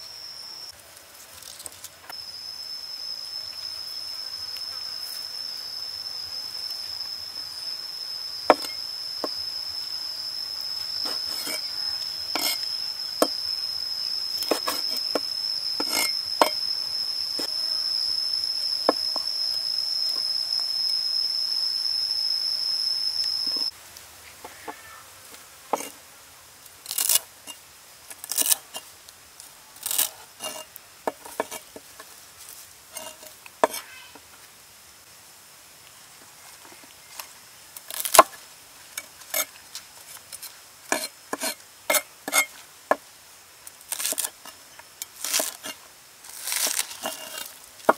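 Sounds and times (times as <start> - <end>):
high insect trill: 0.0 - 34.4, 35.9 - 47.9
knife striking chopping board: 8.5 - 8.8
cleaver chopping: 8.5 - 9.4, 14.4 - 15.0.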